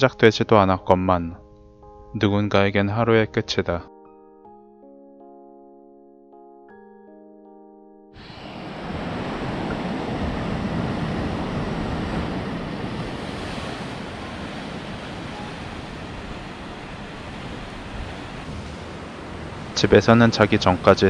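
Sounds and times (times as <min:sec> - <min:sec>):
sea waves on rocky shore: 0:08.2 - 0:21.0.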